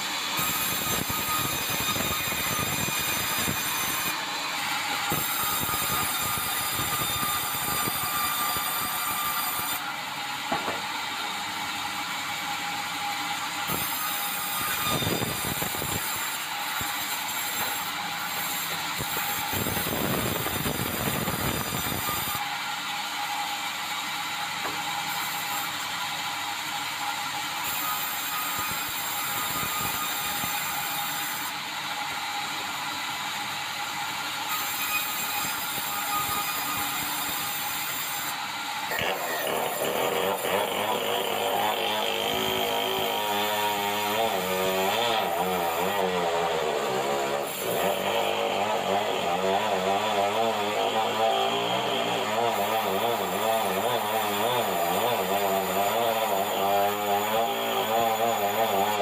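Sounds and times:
sawmill saw cutting log: 0:00.0 - 0:59.0.

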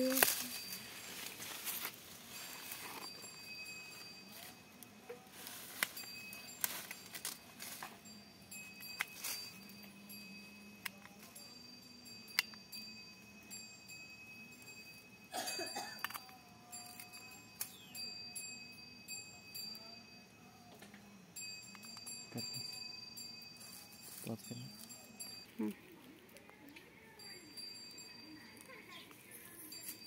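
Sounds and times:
faint high ringing tone: 0:00.0 - 0:26.1, 0:27.0 - 0:30.0.

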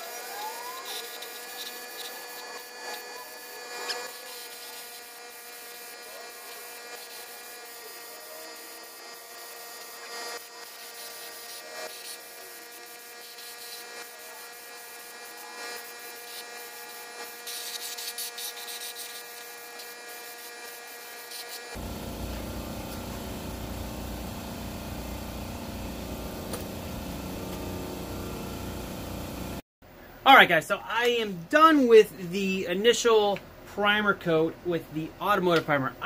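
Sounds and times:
spray gun hissing: 0:20.2 - 0:29.6
low rumbling machine: 0:21.8 - 0:29.6
steady hum: 0:21.8 - 0:30.2.

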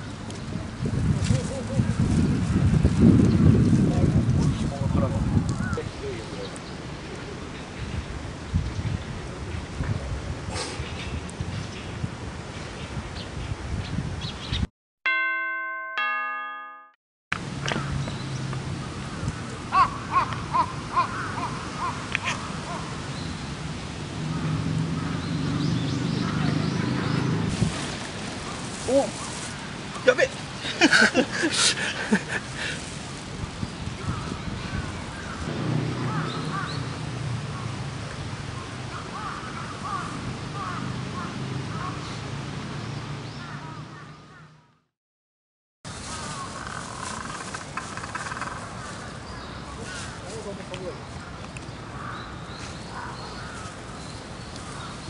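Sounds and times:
outdoor background noise: 0:00.0 - 0:14.7, 0:17.3 - 0:44.9, 0:45.9 - 0:55.0
birds calling: 0:17.6 - 0:32.8, 0:33.6 - 0:44.7, 0:46.0 - 0:55.0
crow cawing: 0:19.7 - 0:22.8, 0:36.1 - 0:36.9, 0:38.9 - 0:42.0, 0:46.4 - 0:49.1, 0:51.9 - 0:52.3, 0:53.0 - 0:53.8.

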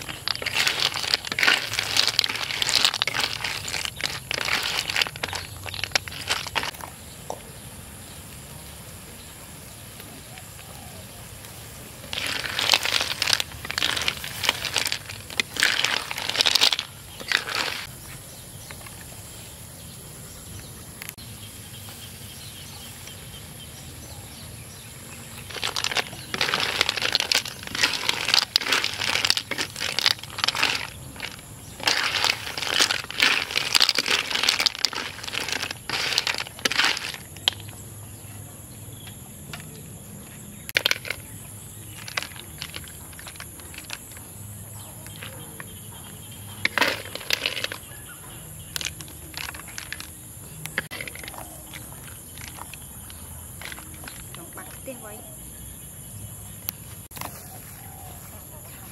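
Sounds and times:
background hiss: 0:06.9 - 0:12.9.

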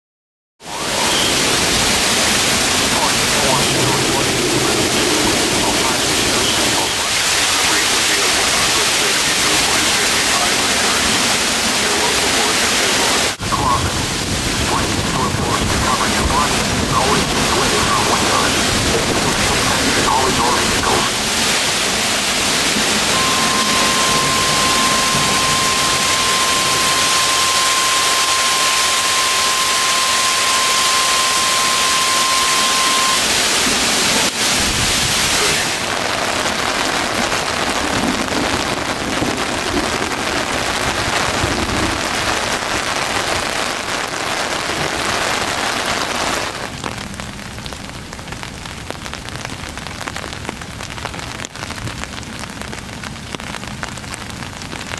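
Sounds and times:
heavy rain on water: 0:00.6 - 0:54.9
steady high tone: 0:02.5 - 0:07.2, 0:15.9 - 0:34.3.

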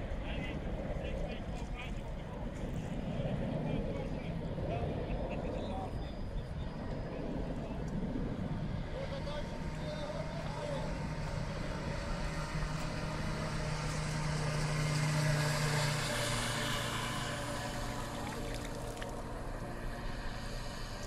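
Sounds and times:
toy powerboat motor passing: 0:08.8 - 0:21.0.

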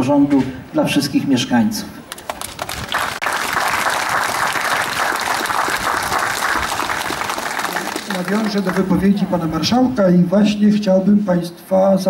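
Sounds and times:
audience applauding: 0:02.1 - 0:09.1.

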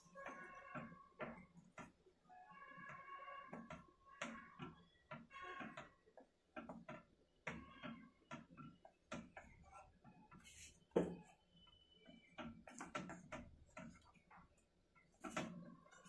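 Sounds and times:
wooden spatula knocking on pan: 0:11.0 - 0:11.4.

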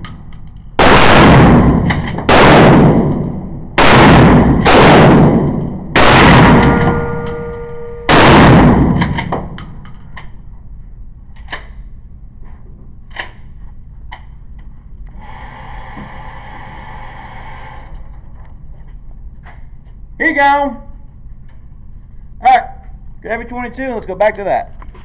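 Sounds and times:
shotgun blasts echoing: 0:00.8 - 0:09.6.

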